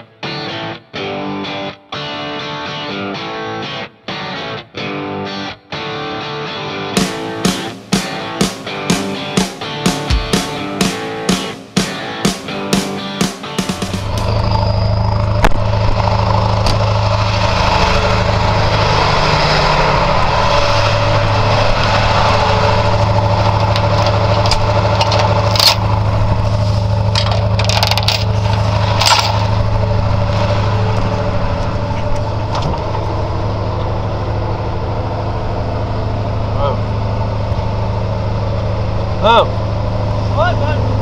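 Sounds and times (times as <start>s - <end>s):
truck engine idling: 7.0s - 41.0s
metal chains clinking: 23.5s - 25.9s, 27.1s - 29.5s.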